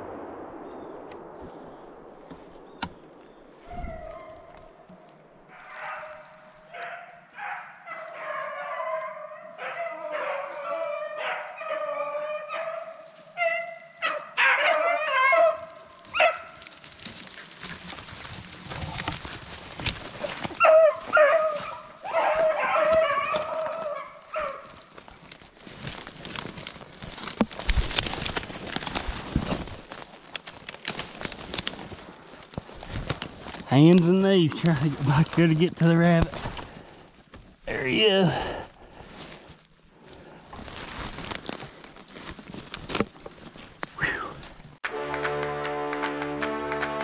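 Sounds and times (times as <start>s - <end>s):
crackling rustle: 0.0s - 8.2s, 15.3s - 44.8s
dogs baying and yelping: 3.7s - 4.5s, 5.5s - 16.6s, 20.2s - 24.7s.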